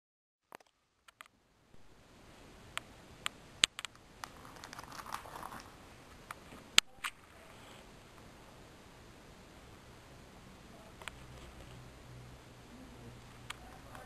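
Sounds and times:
soft plastic crinkling: 0:03.7 - 0:08.3.

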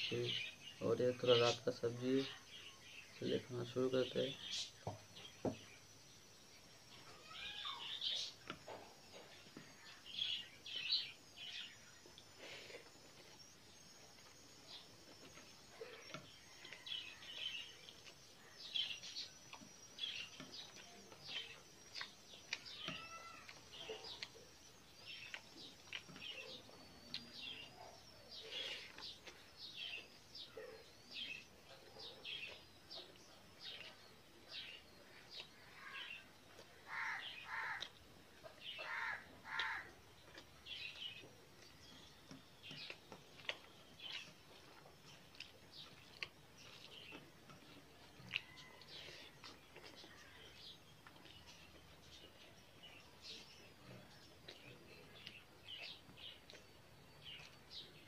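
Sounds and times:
birds chirping: 0:00.0 - 0:58.0
wet chewing and lip-smacking: 0:12.1 - 0:28.0, 0:40.1 - 0:52.9
crows cawing: 0:36.9 - 0:37.9, 0:38.8 - 0:39.9.

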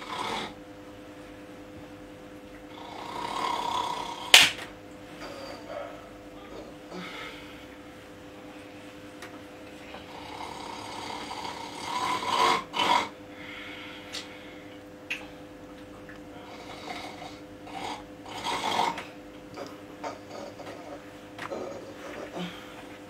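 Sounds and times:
person snoring: 0:00.0 - 0:00.6, 0:02.7 - 0:04.4, 0:06.5 - 0:07.7, 0:10.0 - 0:14.1, 0:16.4 - 0:22.8
steady hum: 0:00.0 - 0:23.0.

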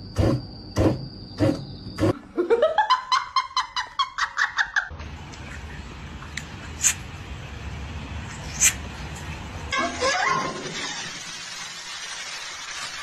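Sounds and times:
high-pitched laughs: 0:09.7 - 0:10.8.

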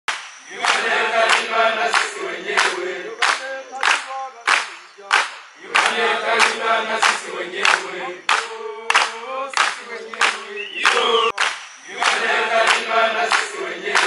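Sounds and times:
group of voices singing: 0:00.4 - 0:14.0.

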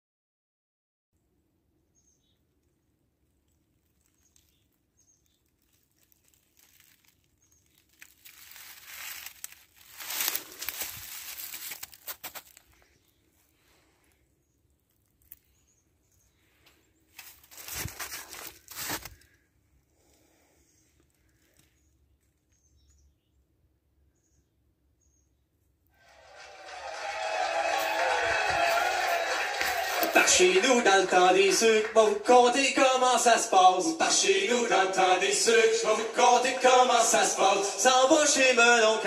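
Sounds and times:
faint high bird chirps: 0:01.8 - 0:08.2, 0:21.6 - 0:25.6
rustling crunching noise: 0:03.2 - 0:19.4, 0:26.6 - 0:32.4.

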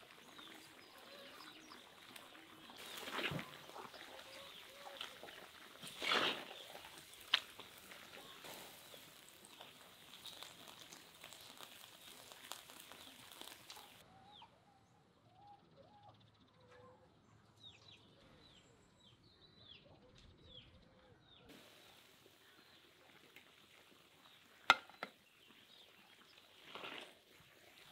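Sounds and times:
meat and potatoes sizzling: 0:00.0 - 0:14.0, 0:21.5 - 0:27.9
small birds chirping: 0:00.0 - 0:27.9.

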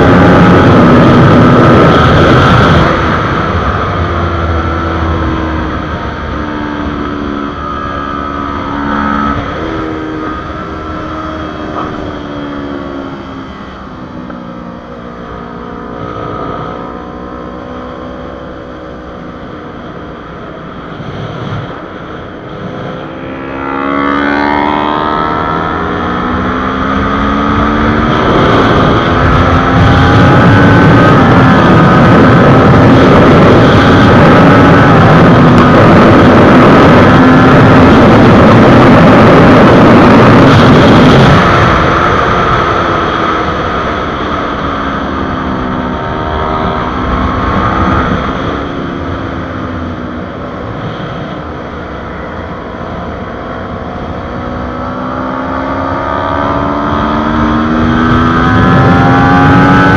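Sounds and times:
heavy wind rush: 0:00.0 - 0:59.9
motorcycle engine at speed: 0:00.0 - 0:59.9.

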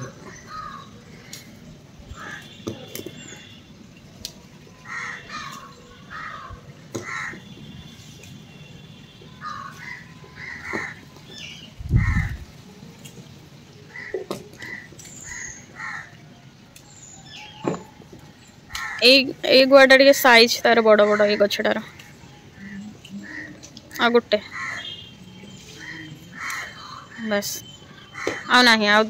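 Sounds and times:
crows cawing: 0:00.4 - 0:01.5, 0:02.2 - 0:02.5, 0:04.8 - 0:07.4, 0:09.4 - 0:11.0, 0:12.0 - 0:12.4, 0:13.9 - 0:16.2, 0:18.7 - 0:19.0, 0:22.6 - 0:23.6, 0:24.4 - 0:25.0, 0:25.8 - 0:27.2, 0:28.1 - 0:28.6.

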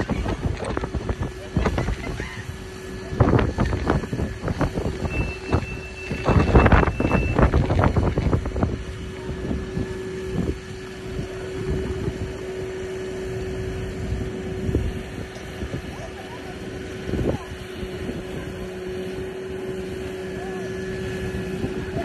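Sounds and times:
wind gusts on microphone: 0:00.0 - 0:20.0
fire engine humming: 0:00.0 - 0:22.0
long high beep: 0:05.0 - 0:07.5.

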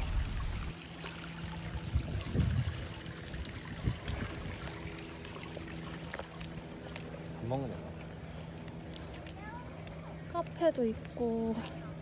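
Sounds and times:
water trickling in a pond: 0:00.0 - 0:11.8.

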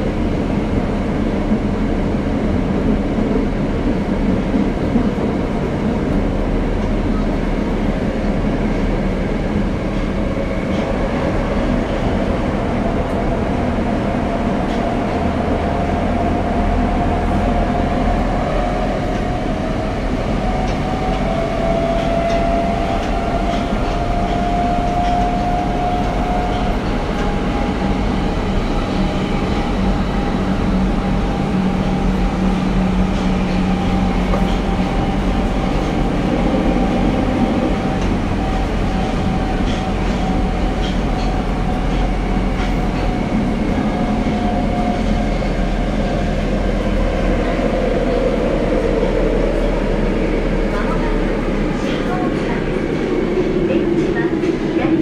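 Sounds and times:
wheels rumbling on rail: 0:00.0 - 0:55.0
rail-joint clicks: 0:09.8 - 0:12.1, 0:14.6 - 0:15.0, 0:20.5 - 0:28.0, 0:31.8 - 0:46.2, 0:50.7 - 0:55.0.

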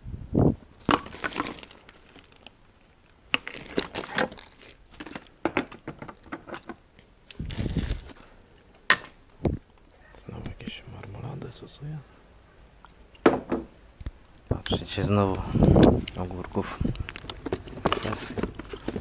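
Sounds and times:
plastic bags crinkling: 0:00.8 - 0:08.5, 0:15.6 - 0:19.0.

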